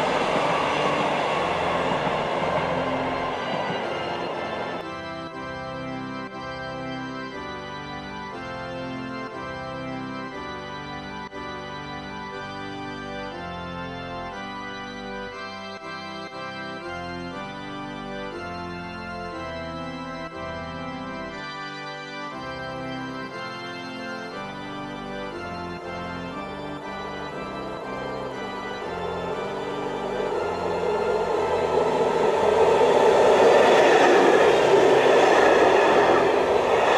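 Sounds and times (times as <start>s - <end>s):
organ-like keyboard chords: 0.0s - 36.9s.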